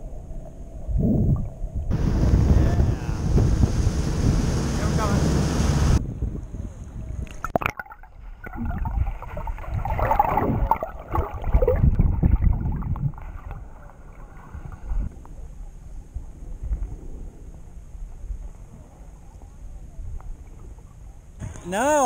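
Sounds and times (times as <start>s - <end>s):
underwater water gurgling: 7.2s - 15.7s.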